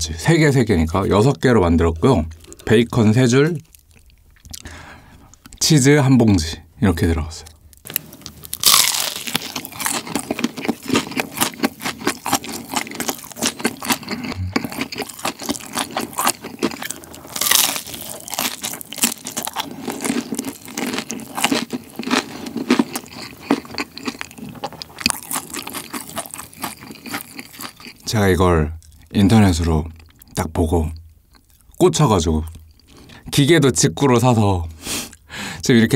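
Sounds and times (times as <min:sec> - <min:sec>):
crunchy biting and chewing: 0:07.5 - 0:28.1.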